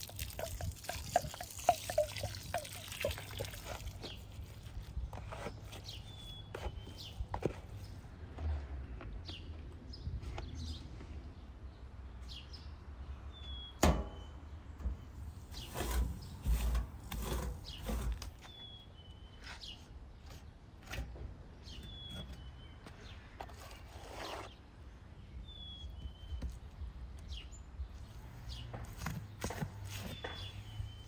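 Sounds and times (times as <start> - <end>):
bird chirping: 0.1 - 7.9, 9.2 - 16.6, 17.6 - 20.6, 21.6 - 23.4, 24.5 - 31.0
trowel scraping clay on metal: 15.5 - 18.6, 23.4 - 24.6.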